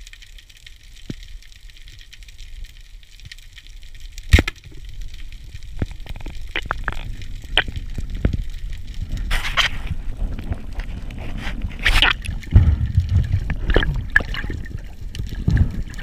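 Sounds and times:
rush of water: 0:05.7 - 0:16.0.

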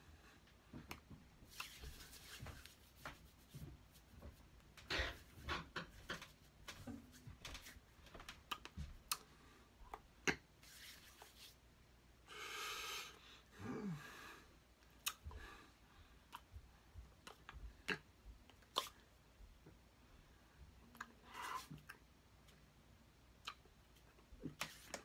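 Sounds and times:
hands and clothing rustling: 0:00.7 - 0:08.9, 0:10.6 - 0:11.6.

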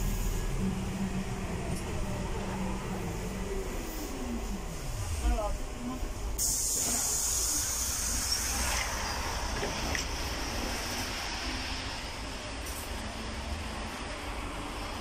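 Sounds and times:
bus rumble: 0:00.0 - 0:15.0
loud airy hiss: 0:06.4 - 0:08.8.

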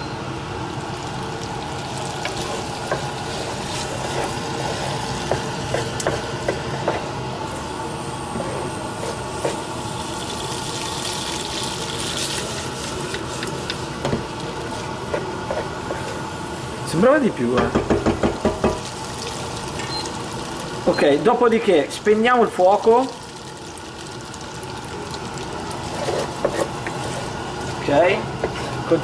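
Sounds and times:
food sizzling in a pan: 0:00.7 - 0:29.0
wooden spoon scraping a pan: 0:02.2 - 0:07.1, 0:08.3 - 0:09.6, 0:14.7 - 0:16.3, 0:25.8 - 0:29.0.

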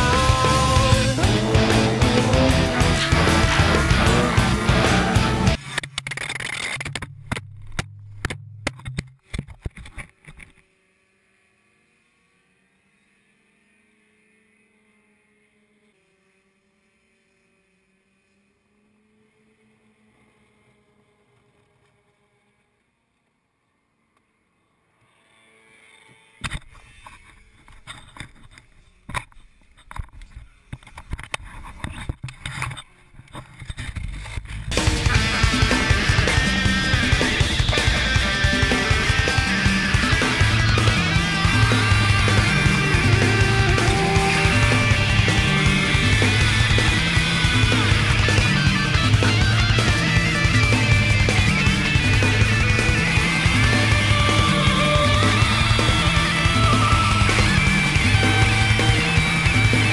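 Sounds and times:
kart engine droning: 0:00.0 - 0:08.8, 0:09.9 - 0:59.9
camera knocking and scraping on ground: 0:05.6 - 0:10.6, 0:26.4 - 0:34.8.

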